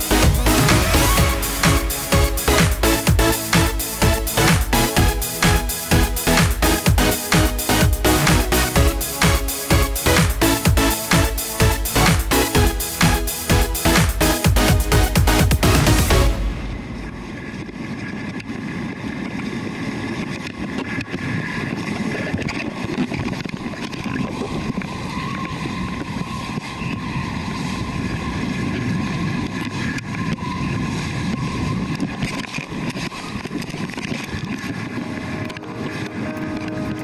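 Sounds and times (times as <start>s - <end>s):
water rushing along a board: 0.0s - 37.0s
wind on microphone: 0.0s - 37.0s.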